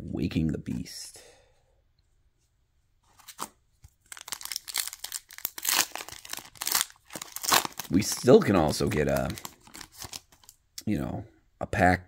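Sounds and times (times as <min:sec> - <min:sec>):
foil wrapper crinkling and tearing: 0:03.2 - 0:10.6.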